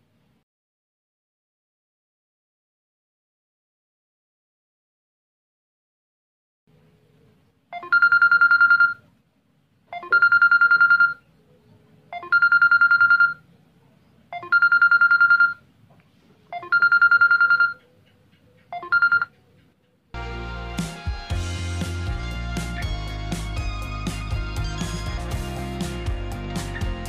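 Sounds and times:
phone ringing electronic trill: 7.8s - 9.0s, 10.0s - 11.2s, 12.2s - 13.4s, 14.4s - 15.6s, 16.6s - 17.8s, 18.8s - 19.3s.

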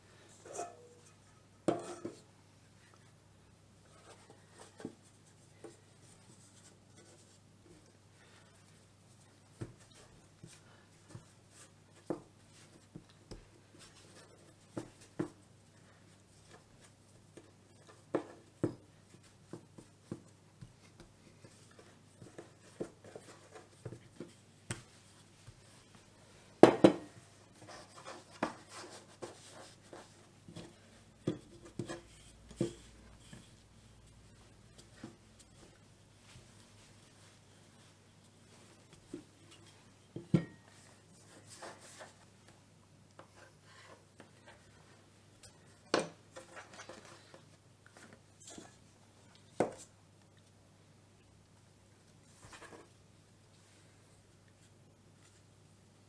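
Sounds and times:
dough being tapped and patted: 9.5s - 14.0s, 16.5s - 25.7s.

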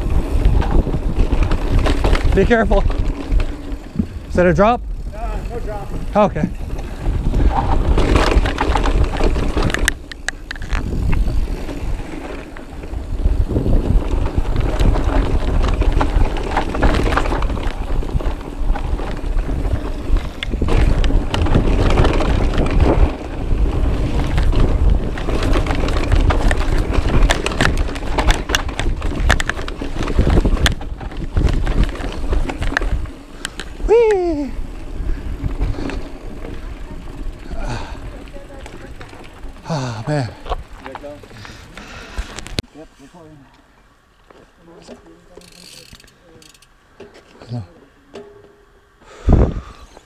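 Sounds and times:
wind on microphone: 0.0s - 36.7s, 49.2s - 49.9s
bike frame and chain rattling: 0.0s - 42.6s, 44.3s - 49.0s
bike tyres rumbling on dirt: 0.0s - 43.2s.

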